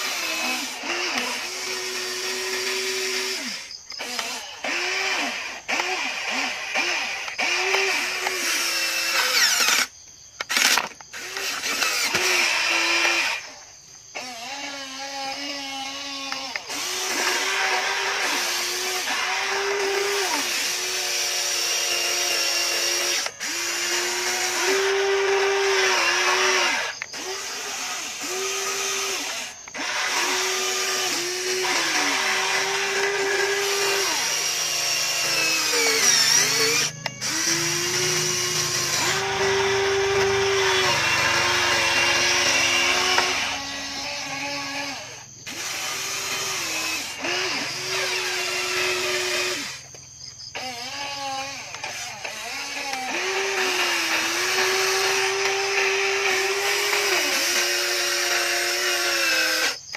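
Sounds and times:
toy electric motors whining: 0:00.0 - 0:59.9.

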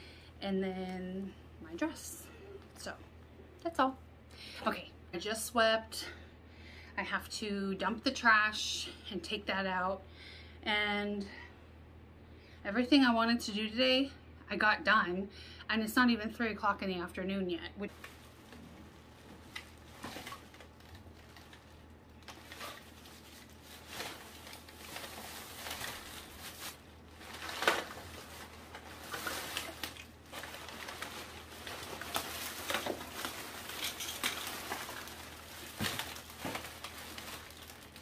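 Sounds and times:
plastic bag rustling: 0:17.8 - 0:38.0.

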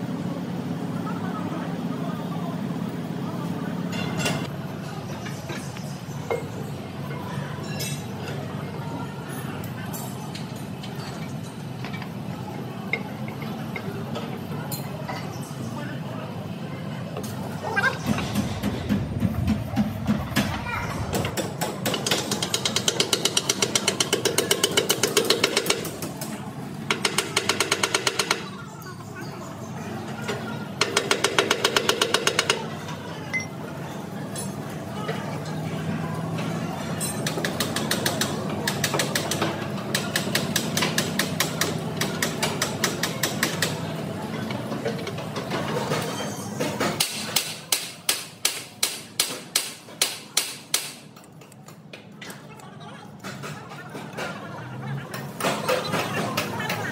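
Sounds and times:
power tool hammering rapidly: 0:30.8 - 0:32.6.

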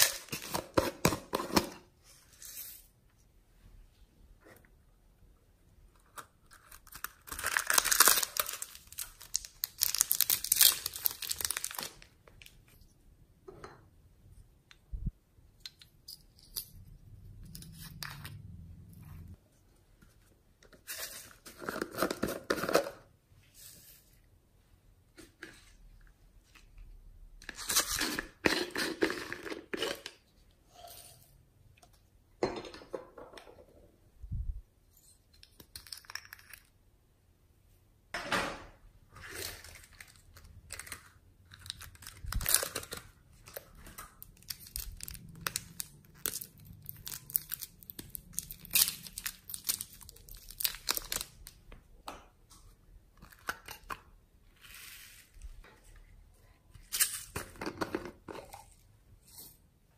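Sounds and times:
plastic containers clicking and crinkling: 0:57.0 - 0:58.8.

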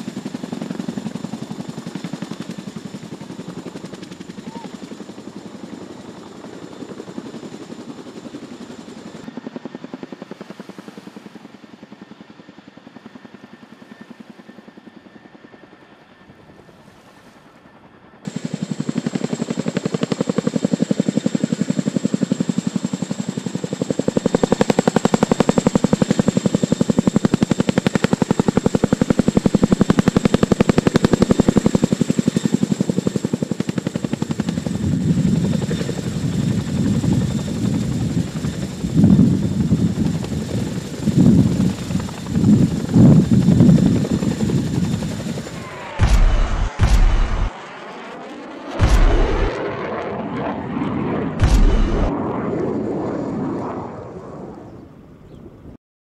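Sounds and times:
helicopter rotors chopping: 0:18.3 - 0:53.3
high whine: 0:44.5 - 0:47.6, 0:48.8 - 0:49.8, 0:51.4 - 0:52.4.

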